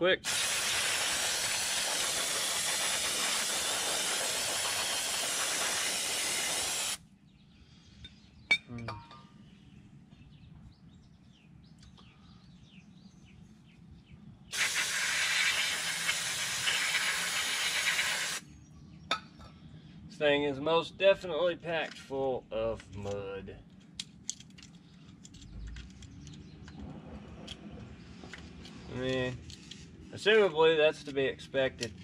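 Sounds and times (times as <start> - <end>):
aerosol spray hissing: 0.2 - 7.0, 14.5 - 18.4.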